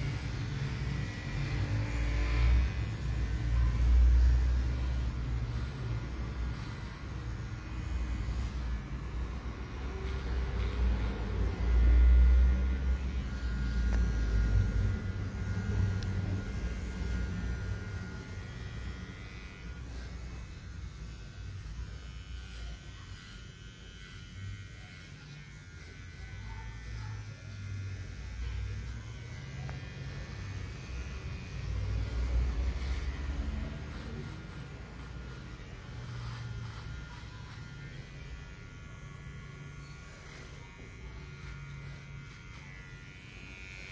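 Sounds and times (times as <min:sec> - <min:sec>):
electric hair trimmers buzzing: 0:00.0 - 0:43.9.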